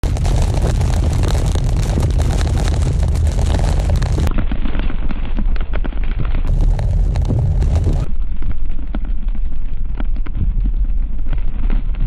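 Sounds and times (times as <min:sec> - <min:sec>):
car driving in heavy rain: 0:00.0 - 0:04.3, 0:06.5 - 0:08.1.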